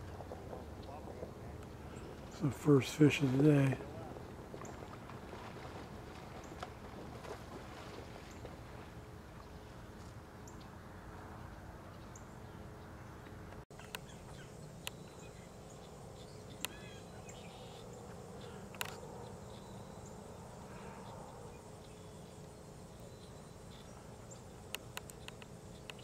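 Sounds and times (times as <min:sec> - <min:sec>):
faint outdoor ambience: 0:00.0 - 0:26.0
sharp clicks: 0:24.7 - 0:26.0.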